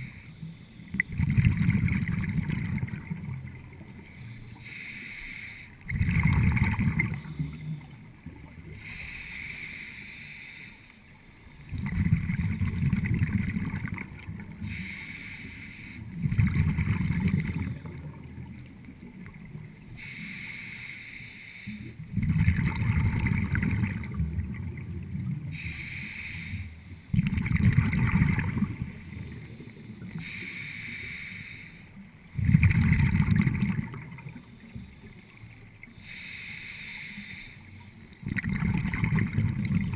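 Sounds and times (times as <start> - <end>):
regulator inhalation hiss: 0.0 - 1.0, 3.9 - 5.8, 8.7 - 11.6, 14.6 - 16.1, 19.9 - 22.0, 25.5 - 27.1, 29.4 - 32.0, 34.4 - 38.1
bubbling exhaled air: 0.0 - 3.9, 5.8 - 9.2, 11.7 - 15.2, 16.1 - 18.5, 21.9 - 30.8, 32.3 - 35.3, 38.2 - 39.9.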